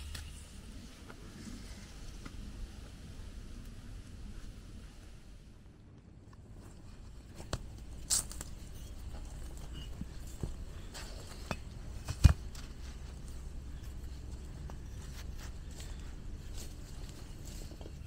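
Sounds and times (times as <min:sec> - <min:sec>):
low steady background noise: 0:00.0 - 0:18.0.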